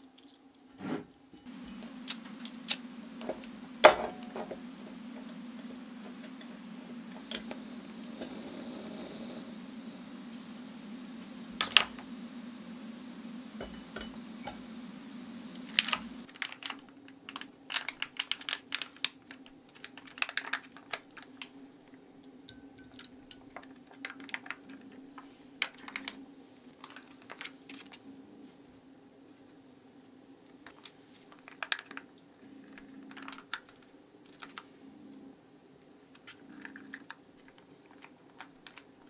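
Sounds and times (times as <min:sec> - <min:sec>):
low steady hum: 0:00.6 - 0:17.5
sharp clicks: 0:01.6 - 0:09.0
plastic food packaging crinkling: 0:16.3 - 0:21.5, 0:22.7 - 0:26.2, 0:26.8 - 0:28.0, 0:30.7 - 0:32.1, 0:33.0 - 0:34.7, 0:36.9 - 0:39.0.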